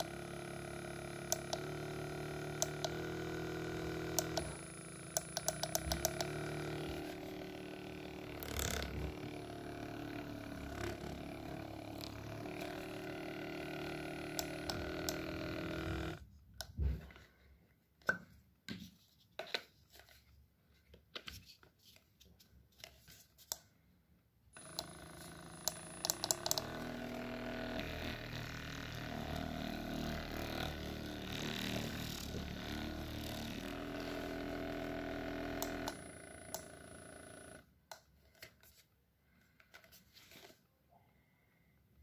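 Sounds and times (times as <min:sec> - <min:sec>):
massage gun motor buzzing: 0:00.0 - 0:16.2, 0:24.6 - 0:37.7.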